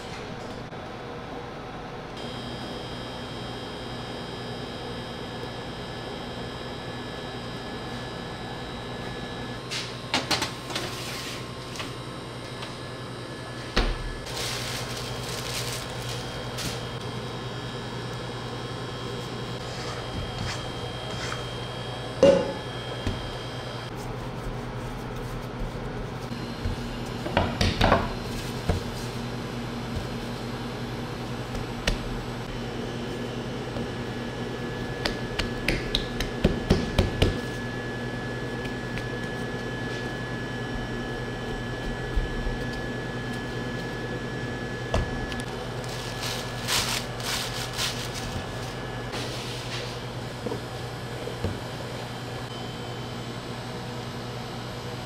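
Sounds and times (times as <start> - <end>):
steady machine hum: 0.0 - 55.0
cups and dishes clinking: 22.2 - 22.6.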